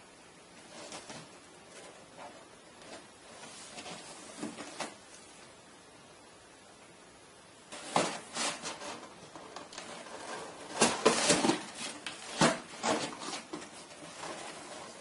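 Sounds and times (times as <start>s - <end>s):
cardboard rustling and knocking: 0.7s - 5.0s, 7.7s - 15.0s.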